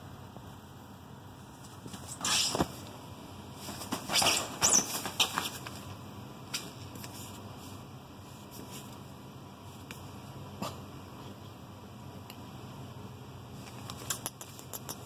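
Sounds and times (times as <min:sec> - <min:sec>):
fabric rustling and swishing: 0:03.5 - 0:05.9.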